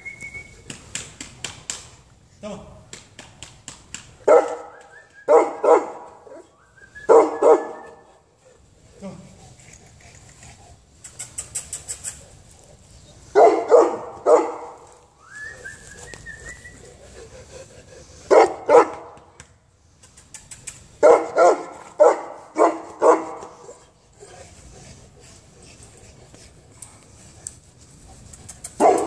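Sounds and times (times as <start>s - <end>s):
dog barking: 4.3s - 4.7s, 5.3s - 6.4s, 7.1s - 7.9s, 13.4s - 14.8s, 18.3s - 19.1s, 21.0s - 23.6s, 28.8s - 29.0s.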